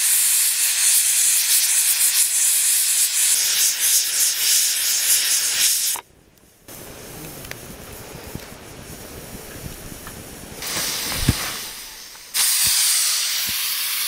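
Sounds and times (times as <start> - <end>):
hot oil sizzling in a pan: 0.0 - 6.0, 10.6 - 14.0.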